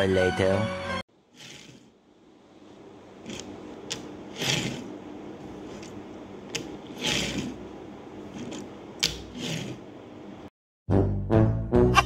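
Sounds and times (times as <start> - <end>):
toy car wheels whirring: 1.4 - 1.9, 4.3 - 4.9, 6.5 - 7.6, 9.3 - 9.8.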